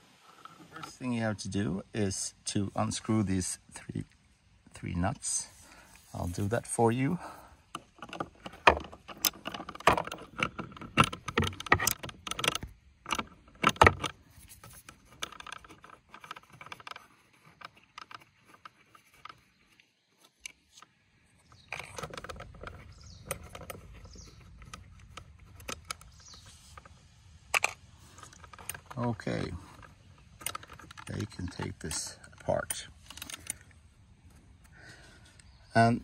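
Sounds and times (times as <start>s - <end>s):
faint steady hiss: 0.0s - 10.3s, 24.1s - 36.0s
metal nuts rattling: 7.2s - 19.7s, 20.8s - 34.4s.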